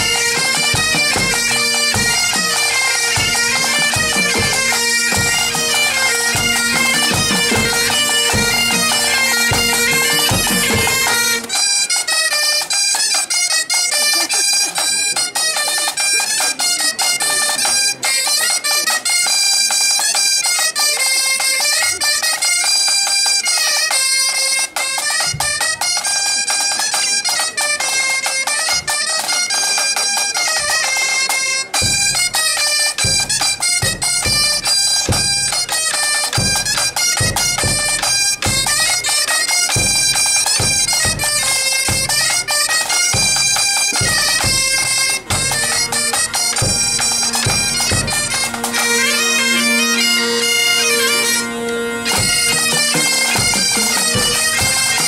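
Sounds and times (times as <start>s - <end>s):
snare drums: 0.0s - 11.6s, 52.1s - 55.0s
pipe band playing: 0.0s - 55.0s.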